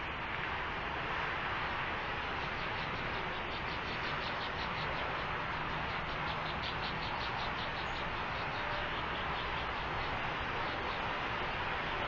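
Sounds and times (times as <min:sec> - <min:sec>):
microphone hiss: 0:00.0 - 0:12.0.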